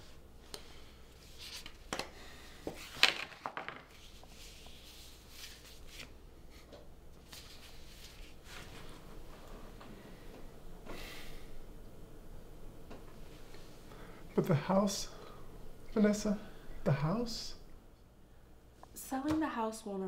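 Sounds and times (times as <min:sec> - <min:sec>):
paper rustling: 0:01.2 - 0:02.0, 0:02.8 - 0:09.0.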